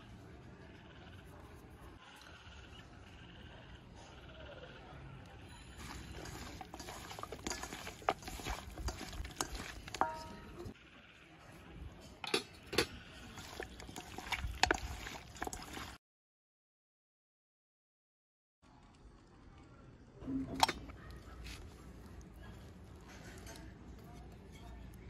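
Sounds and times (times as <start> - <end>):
chicken mixed by hand squelching: 5.7 - 10.8, 13.1 - 16.0.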